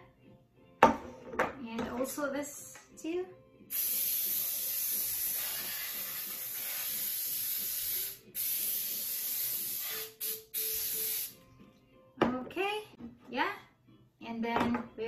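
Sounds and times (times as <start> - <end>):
aerosol can spray hissing: 3.7 - 11.4.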